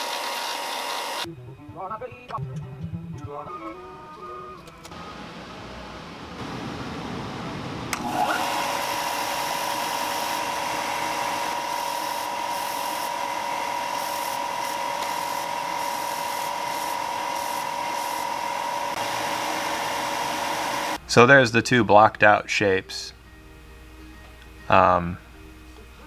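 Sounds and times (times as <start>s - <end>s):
belt sander whining: 0.0s - 1.3s, 7.9s - 21.0s.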